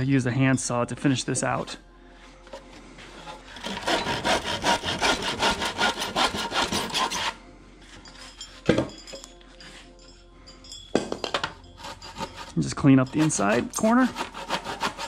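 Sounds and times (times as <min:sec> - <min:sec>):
hand saw cutting wood: 0:03.2 - 0:07.4, 0:11.8 - 0:15.0.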